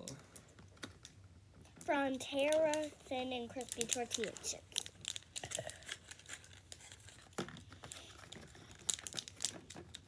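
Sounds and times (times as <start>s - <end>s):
plastic wrappers crinkling: 2.4s - 10.0s.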